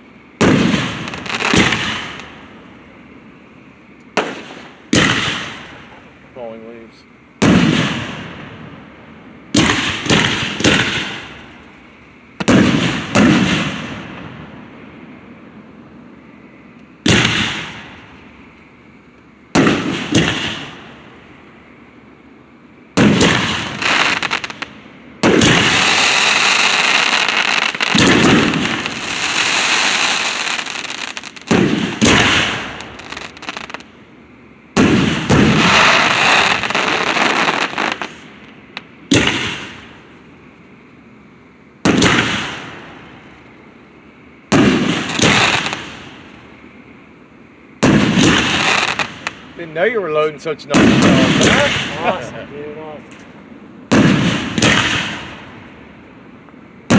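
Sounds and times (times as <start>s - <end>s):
rapid firework crackling: 0.4s - 2.4s, 4.2s - 5.9s, 9.5s - 11.6s, 12.4s - 14.1s, 17.0s - 18.0s, 19.6s - 20.9s, 23.0s - 33.9s, 34.8s - 38.5s, 39.1s - 40.0s, 41.8s - 42.8s, 44.5s - 46.2s, 47.8s - 49.7s, 50.7s - 52.3s, 53.9s - 55.5s
firework shells booming: 0.4s - 2.6s, 4.1s - 6.1s, 7.4s - 8.9s, 9.5s - 14.6s, 17.0s - 18.4s, 19.5s - 21.2s, 22.9s - 33.9s, 34.7s - 40.1s, 41.8s - 43.4s, 44.5s - 46.5s, 47.8s - 55.8s.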